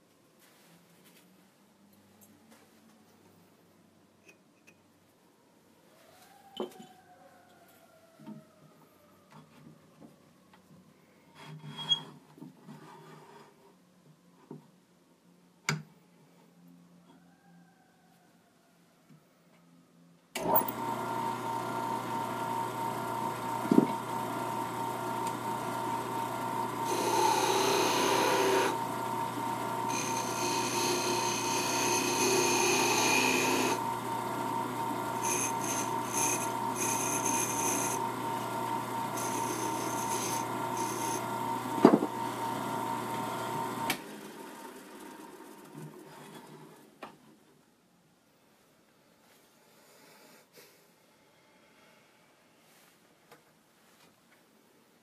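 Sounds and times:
lathe motor humming: 20.4 - 45.3
hand rubbing turning wood: 26.8 - 28.8, 29.9 - 33.8, 35.2 - 38.0, 39.1 - 41.2.

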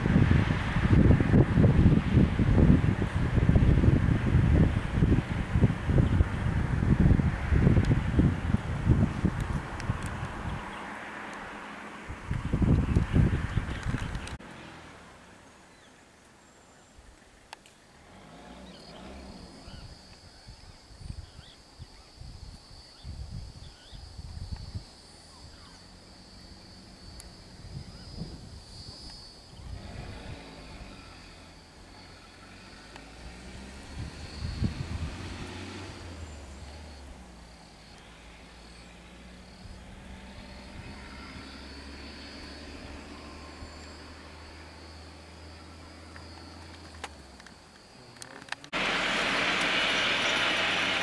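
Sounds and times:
high-pitched insect drone: 19.3 - 51.0
vehicle engine idling: 29.3 - 51.0.

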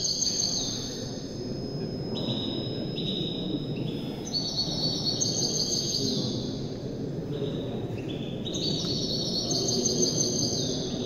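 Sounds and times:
songbird trilling: 0.0 - 6.5.

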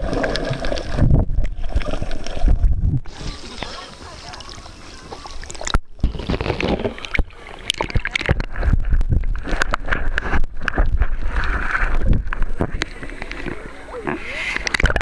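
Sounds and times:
low rumble: 0.0 - 3.3
muffled water sloshing and bubbling: 0.0 - 15.0
knocks and crackles: 5.5 - 15.0.

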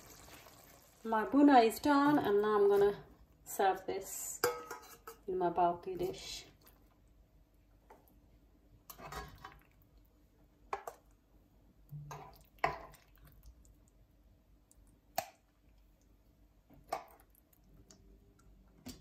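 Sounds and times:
metal spoon scraping a pan: 4.4 - 5.3, 8.9 - 9.6.

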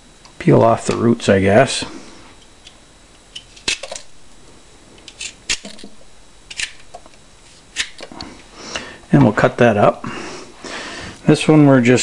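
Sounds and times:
vegetable peeler scraping: 5.1 - 5.8.

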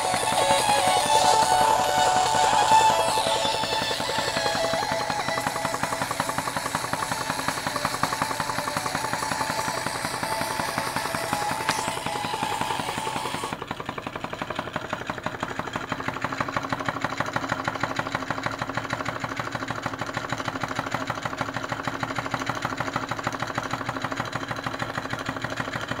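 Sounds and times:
small engine mechanical clatter: 0.0 - 26.0.

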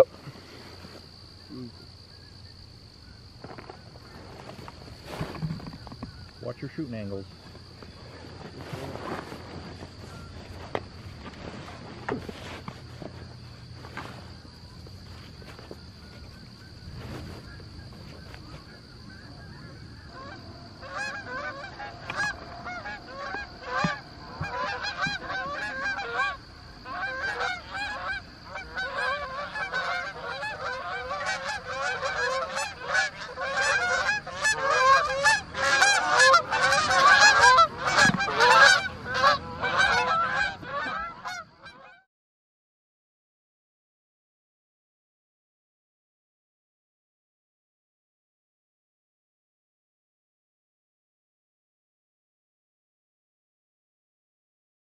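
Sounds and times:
geese honking: 12.3 - 42.0.

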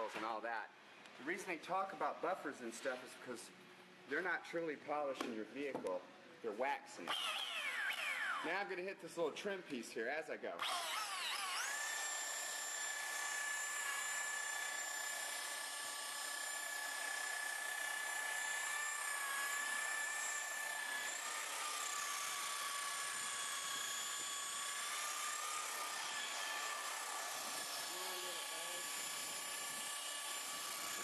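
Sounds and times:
rotary buffer whining: 10.6 - 31.0.

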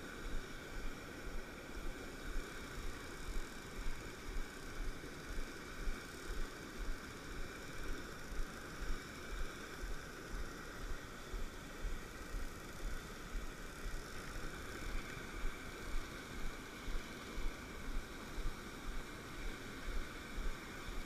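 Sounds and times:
stream rushing over cascade: 0.0 - 21.0.

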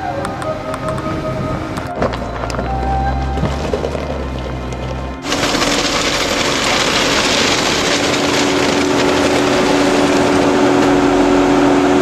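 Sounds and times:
two-note hum: 0.0 - 5.4
engine and fan hiss: 0.0 - 12.0.

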